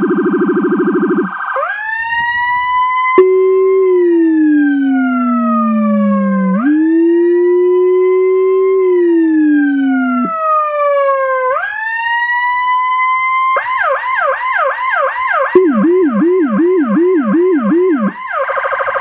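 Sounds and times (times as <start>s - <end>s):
electronic siren wailing: 0.0s - 19.0s
electronic siren yelping: 0.0s - 19.0s
low-frequency siren tone: 0.0s - 19.0s.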